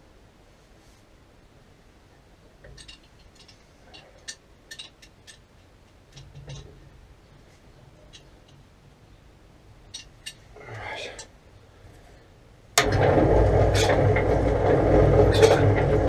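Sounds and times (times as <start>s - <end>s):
metal tools clinking: 2.7s - 6.6s.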